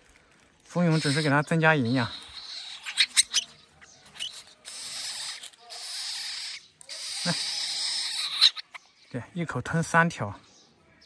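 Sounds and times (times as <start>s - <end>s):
bird chick begging calls: 0.8s - 8.9s.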